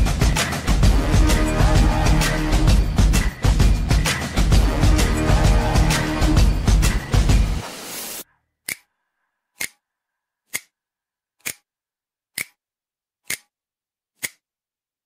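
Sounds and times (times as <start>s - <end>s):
background music: 0.0s - 8.2s
sharp clock-like ticks: 9.6s - 9.8s, 10.5s - 10.7s, 11.4s - 11.7s, 12.4s - 12.6s, 13.3s - 13.5s.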